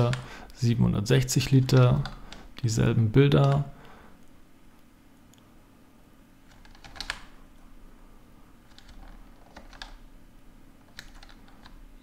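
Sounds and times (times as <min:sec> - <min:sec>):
low steady hum: 0:00.0 - 0:12.0
keyboard and mouse clicking: 0:03.4 - 0:03.7, 0:06.5 - 0:07.3, 0:08.7 - 0:10.0, 0:10.8 - 0:11.8.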